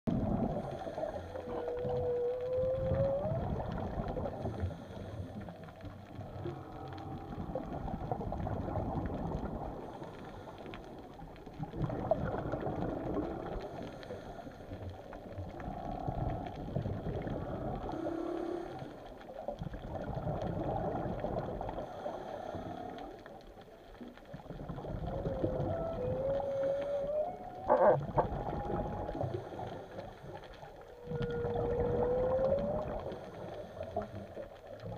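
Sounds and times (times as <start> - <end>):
whale moans and grunts: 0.2 - 4.7, 6.2 - 9.1, 24.7 - 30.0, 30.7 - 33.4
whale rising whoop: 0.6 - 4.4, 25.0 - 29.8, 30.8 - 33.3.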